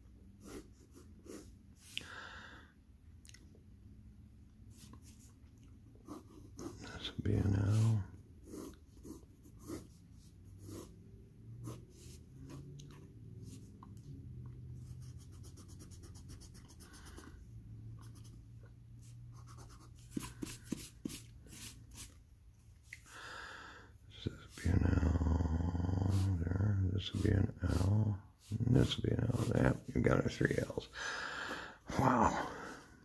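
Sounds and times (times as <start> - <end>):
faint low hum: 0.0 - 33.0
pencil scratching on paper: 0.4 - 1.6, 6.0 - 12.8, 14.8 - 17.4, 18.0 - 22.2, 26.0 - 30.6
eraser rubbing paper: 6.0 - 11.0, 19.0 - 22.2, 26.0 - 30.6.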